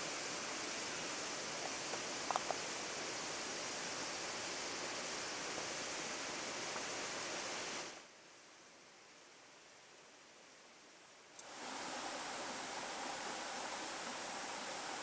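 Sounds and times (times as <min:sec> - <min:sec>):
river water rushing: 0:11.4 - 0:15.0.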